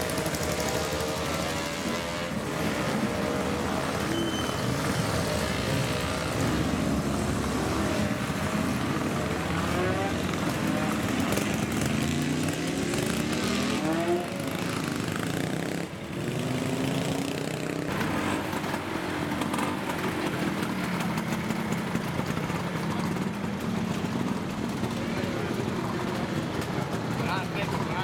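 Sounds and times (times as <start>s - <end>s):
motorcycle engine revving: 0.0s - 28.0s
motorcycle engines idling: 0.0s - 28.0s
people talking: 24.8s - 28.0s.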